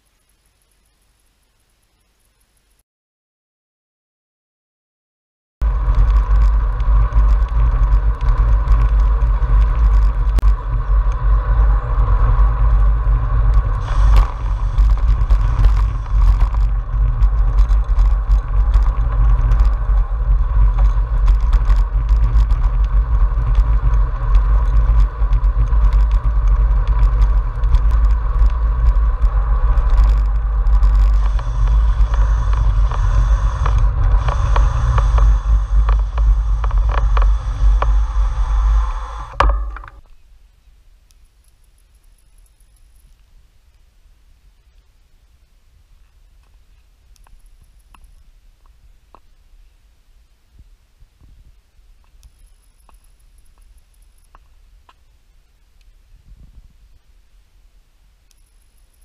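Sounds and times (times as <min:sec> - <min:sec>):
bike clicks and rattles: 0:05.6 - 0:40.2, 0:41.1 - 0:43.3, 0:47.2 - 0:48.3, 0:52.1 - 0:54.5, 0:58.3 - 0:59.0
wind and road rumble: 0:05.6 - 0:59.0.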